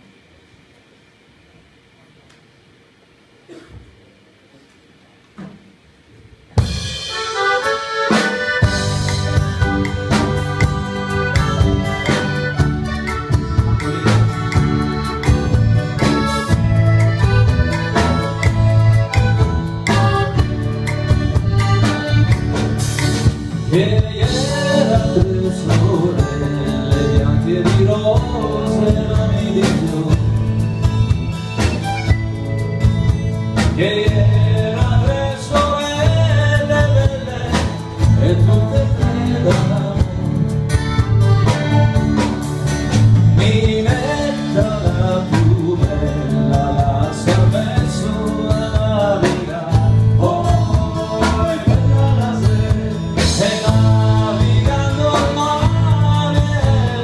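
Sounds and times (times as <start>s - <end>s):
drums: 0.0s - 57.0s
guitars: 6.5s - 57.0s
accordion: 6.7s - 57.0s
man singing: 23.5s - 30.8s, 33.6s - 42.0s, 43.3s - 57.0s.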